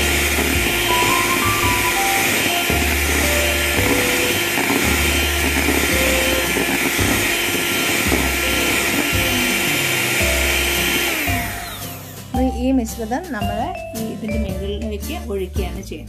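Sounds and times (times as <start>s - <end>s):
electric hand mixer whipping: 0.0s - 12.4s
background music: 0.0s - 16.0s.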